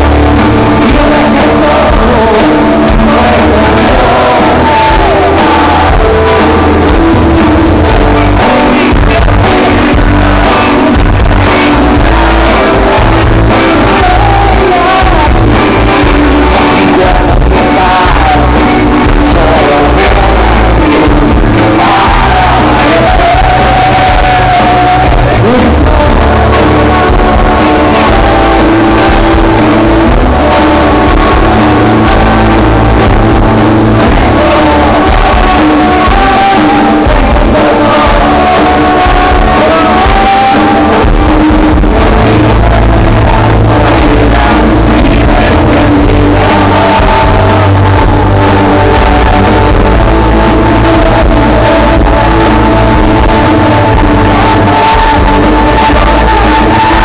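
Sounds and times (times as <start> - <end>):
heavy bass line: 0.0 - 57.0
rock band playing live: 0.0 - 57.0.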